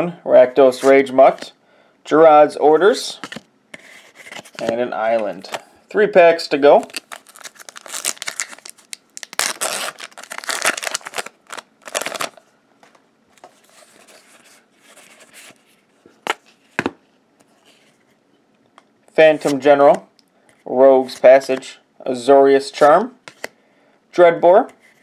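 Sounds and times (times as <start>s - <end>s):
cards rustling: 6.7s - 16.9s
wrapper crinkling and tearing: 6.8s - 12.4s.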